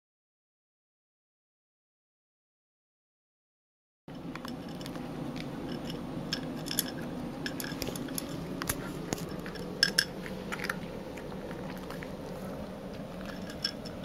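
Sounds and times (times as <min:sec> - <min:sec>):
cat eating from a bowl: 0:04.1 - 0:14.0
low room hum: 0:04.1 - 0:14.0.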